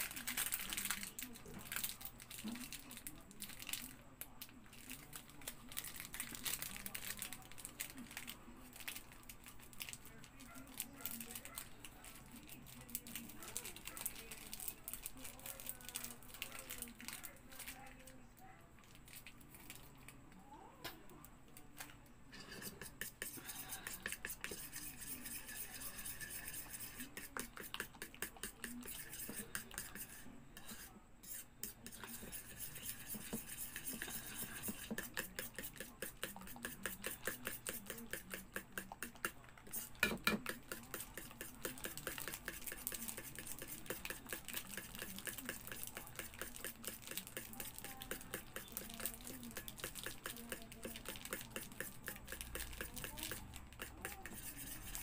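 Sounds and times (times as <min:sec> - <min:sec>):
spoon scraping plastic bowl: 0:22.3 - 0:55.0.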